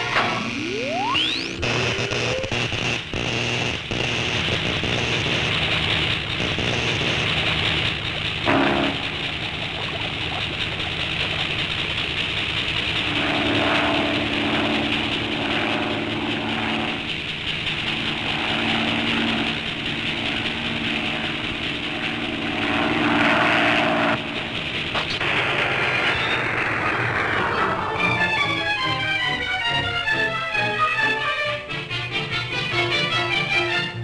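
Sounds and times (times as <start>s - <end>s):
machinery humming and whirring: 0.0s - 34.0s
low droning tone: 13.0s - 28.2s.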